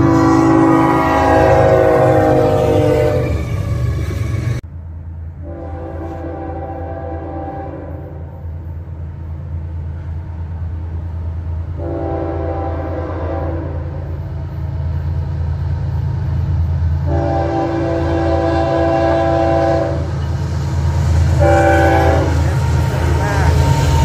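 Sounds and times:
locomotive air horn blasts: 0:00.0 - 0:03.5, 0:05.4 - 0:08.5, 0:11.8 - 0:14.2, 0:17.0 - 0:20.1, 0:21.4 - 0:23.6
train engine rumble: 0:00.0 - 0:24.0.

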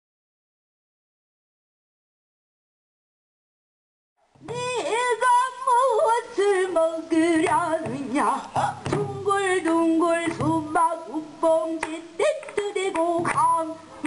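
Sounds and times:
woman singing with vibrato: 0:04.4 - 0:14.0.

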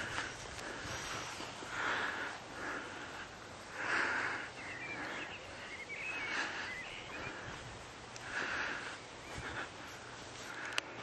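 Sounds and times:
footsteps through leafy plants: 0:00.0 - 0:02.1.

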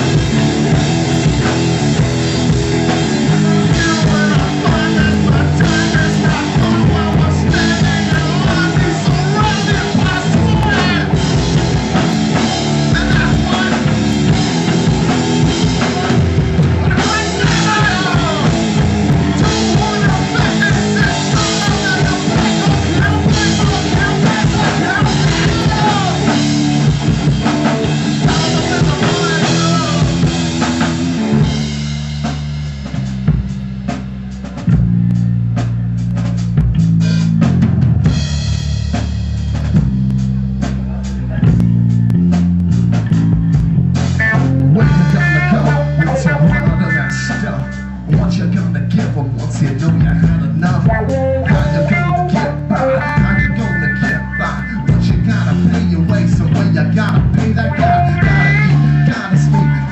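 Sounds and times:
lead guitar with bending notes: 0:00.0 - 0:32.2, 0:39.6 - 0:48.6, 0:49.8 - 0:59.9
bass guitar: 0:00.0 - 0:59.9
drum kit: 0:00.0 - 0:59.9.

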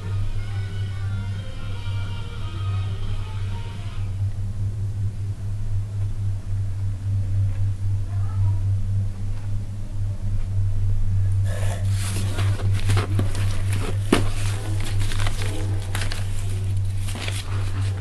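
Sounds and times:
low electrical hum: 0:00.0 - 0:18.0
crackling handling noise: 0:11.8 - 0:18.0.

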